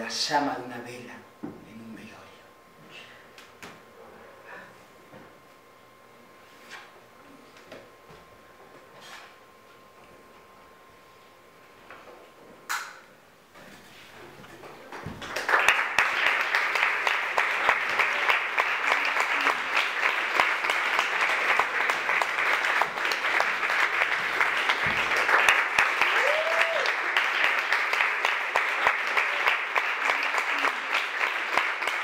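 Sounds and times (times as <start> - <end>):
audience applause: 14.9 - 32.0.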